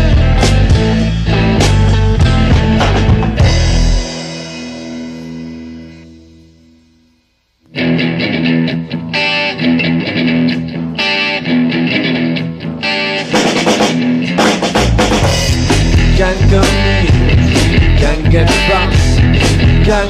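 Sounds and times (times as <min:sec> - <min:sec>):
drum kit: 0:00.0 - 0:06.5, 0:13.1 - 0:20.0
electric guitar: 0:00.0 - 0:20.0.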